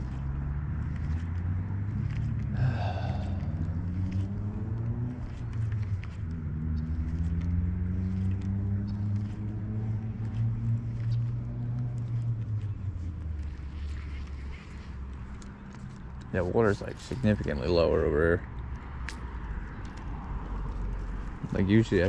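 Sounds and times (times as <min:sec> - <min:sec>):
steady low rumble: 0:00.0 - 0:07.1
vehicle engine accelerating: 0:00.0 - 0:22.0.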